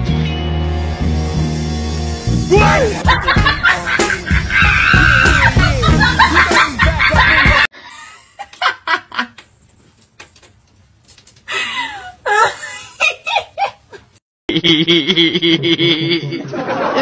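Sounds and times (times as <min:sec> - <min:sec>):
person giggling and laughing: 0:02.6 - 0:09.4, 0:11.5 - 0:17.0.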